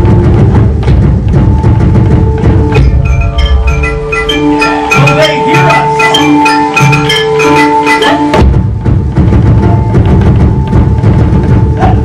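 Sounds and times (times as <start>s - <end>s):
rapid drum hits: 0.0s - 7.2s, 8.2s - 12.0s
wood-block strikes: 0.0s - 12.0s
ringing bell-like notes: 2.4s - 8.4s.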